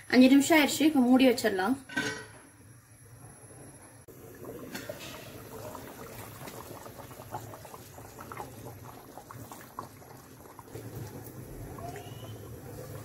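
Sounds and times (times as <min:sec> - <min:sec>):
curry bubbling and popping: 0:04.1 - 0:13.0.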